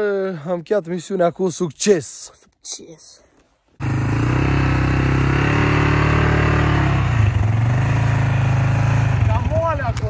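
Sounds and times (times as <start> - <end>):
quad engine running: 3.8 - 10.0.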